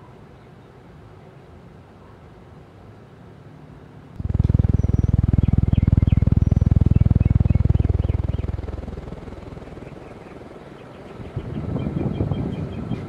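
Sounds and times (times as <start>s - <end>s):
fan air buffeting microphone: 4.0s - 13.0s.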